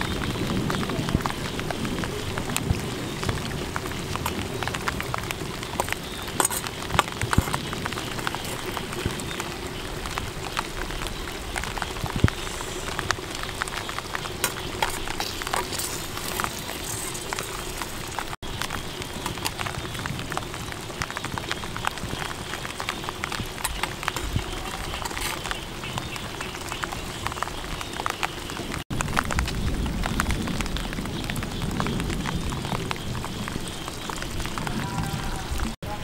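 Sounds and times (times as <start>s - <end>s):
crackling patter: 0.0s - 36.0s
metal tongs scraping clay pot: 14.4s - 18.2s, 23.6s - 25.6s.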